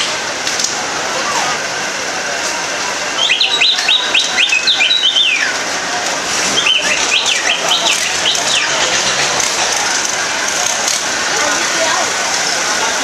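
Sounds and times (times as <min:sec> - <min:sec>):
bird chirping: 0:03.2 - 0:05.5, 0:06.5 - 0:09.4.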